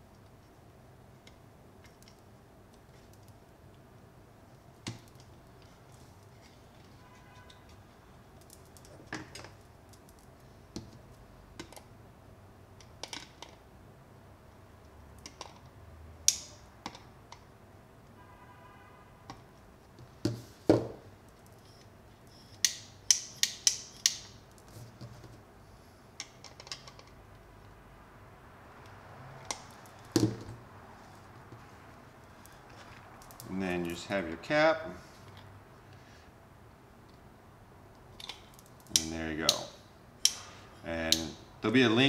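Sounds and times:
hand tools clicking and tapping: 0:22.6 - 0:24.6, 0:38.2 - 0:40.5.

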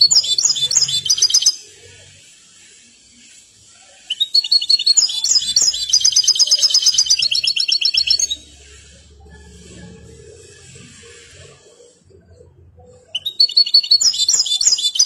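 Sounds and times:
goldfinch twittering and trilling: 0:00.0 - 0:01.6, 0:04.2 - 0:08.5, 0:13.2 - 0:15.0.

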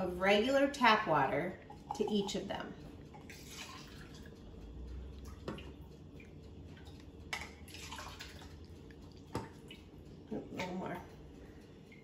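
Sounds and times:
water pouring into plastic cups: 0:07.7 - 0:08.5.

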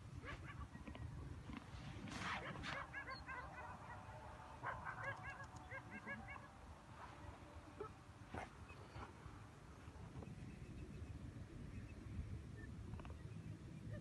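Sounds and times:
puppies yipping and whining: 0:02.4 - 0:03.7.

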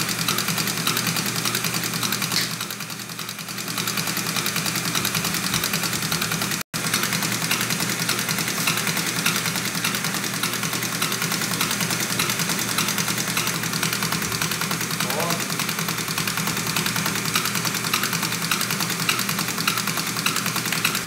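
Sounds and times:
diesel injection pump running: 0:00.0 - 0:21.0.

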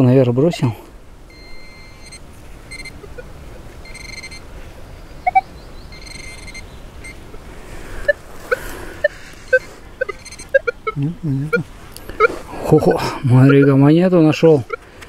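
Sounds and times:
metal detector beeping: 0:01.3 - 0:04.5, 0:05.3 - 0:07.3, 0:08.0 - 0:14.9
short chirps: 0:05.2 - 0:07.2, 0:08.0 - 0:12.4.

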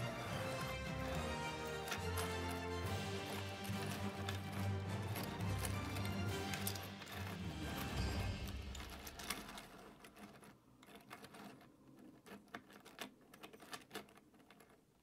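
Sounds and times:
plastic jointed segments clicking: 0:00.0 - 0:15.0.

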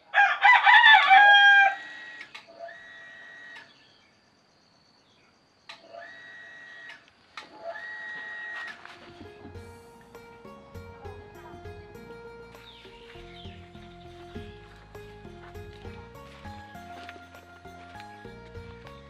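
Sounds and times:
roosters crowing: 0:00.0 - 0:03.6.

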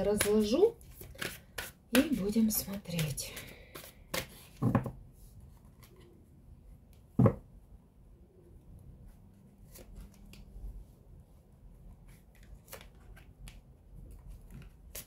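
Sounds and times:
cards rustling and tapping: 0:00.0 - 0:05.0.

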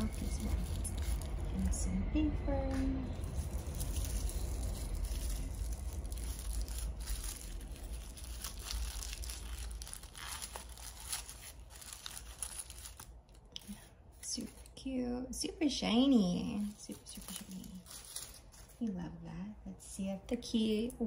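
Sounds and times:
plastic wrapping crinkling and tearing: 0:00.0 - 0:01.8, 0:03.1 - 0:14.8, 0:16.2 - 0:18.8.

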